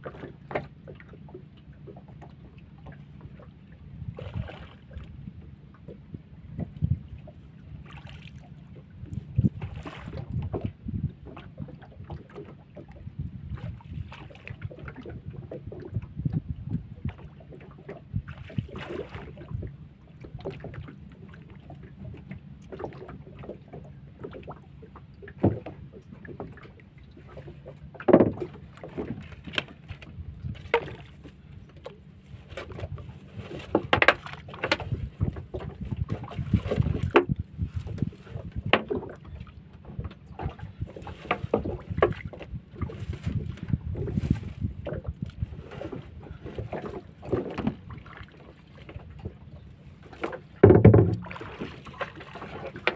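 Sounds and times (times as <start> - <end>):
low rumble of water: 0.0 - 52.9
wind: 0.0 - 52.9
wooden pole knocking on hull: 25.3 - 31.9, 32.5 - 49.4, 50.1 - 52.9.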